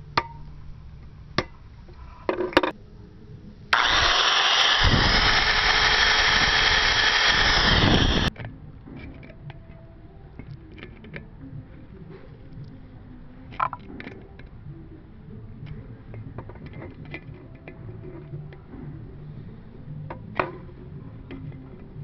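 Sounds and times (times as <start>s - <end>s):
rotary tool running: 3.8s - 8.3s.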